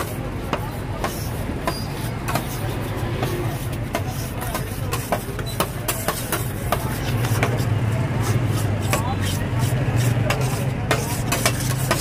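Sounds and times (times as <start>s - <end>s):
metal spatulas striking a cold plate: 10.3s - 12.0s.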